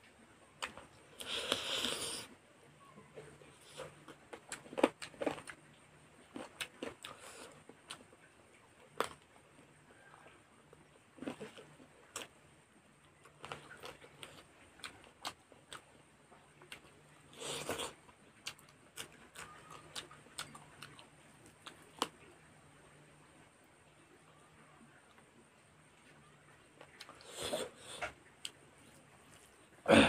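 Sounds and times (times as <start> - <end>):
faint low hum: 0.0 - 30.0
wet chewing: 3.6 - 5.6, 13.1 - 22.3.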